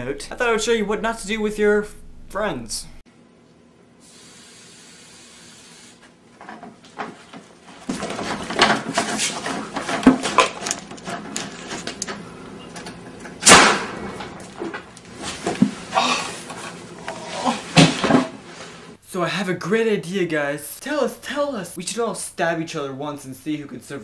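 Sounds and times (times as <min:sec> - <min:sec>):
clatter and knocking: 0:06.4 - 0:12.0
potato cannon bang: 0:13.4 - 0:14.4.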